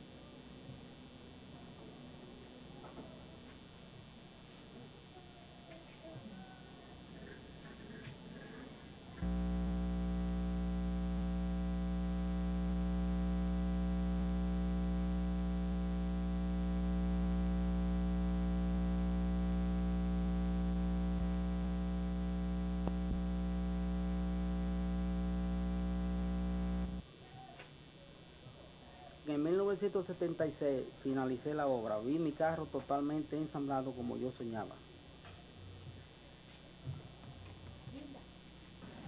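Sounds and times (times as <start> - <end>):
low drone of held tones: 9.2 - 27.0.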